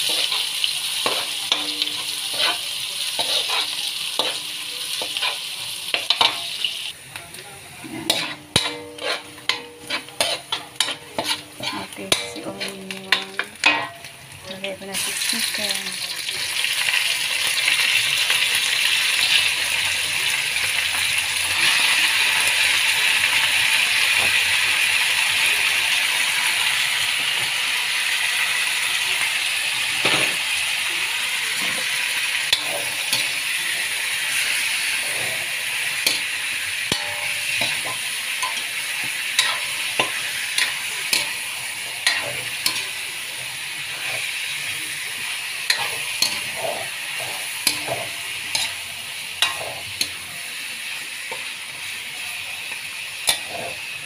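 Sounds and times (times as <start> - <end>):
metal spatula scraping and clinking: 0.0 - 6.7, 7.8 - 14.7, 32.5 - 33.5, 34.3 - 38.8, 39.4 - 43.0, 45.7 - 50.2, 53.2 - 53.8
chicken sizzling in hot oil: 0.0 - 54.0.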